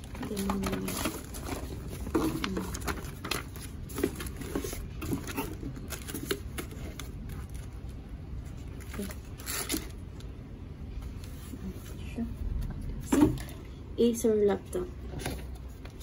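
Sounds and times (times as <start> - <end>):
cardboard rustle: 0.0 - 7.8.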